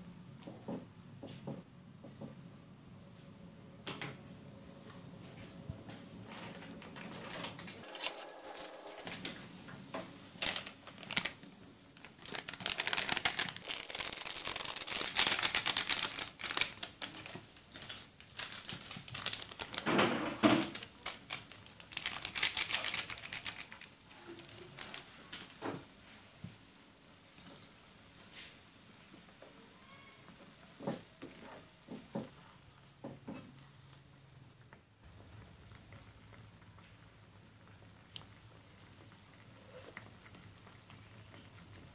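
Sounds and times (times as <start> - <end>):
handling noise: 6.3 - 21.5
bubbles popping in frying pan: 35.0 - 41.9.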